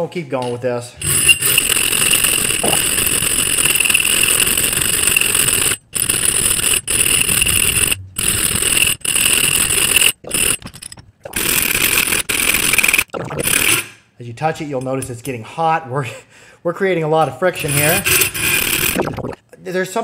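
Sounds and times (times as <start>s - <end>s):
hand file scraping steel: 1.0s - 10.6s, 17.4s - 19.0s.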